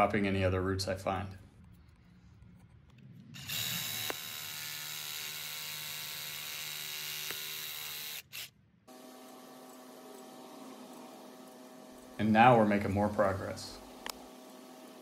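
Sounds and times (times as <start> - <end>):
reciprocating saw cutting: 3.4 - 15.0.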